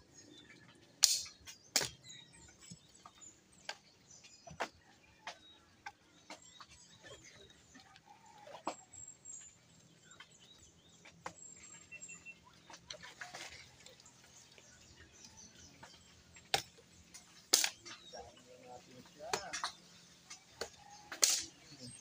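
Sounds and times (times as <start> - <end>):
faint bird chirps: 0.0 - 22.0
firewood sticks knocking: 1.0 - 2.0, 19.2 - 21.6.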